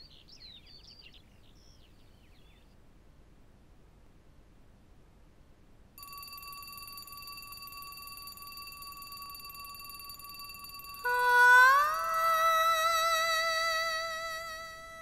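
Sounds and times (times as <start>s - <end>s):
alarm clock ringing: 6.0s - 12.6s.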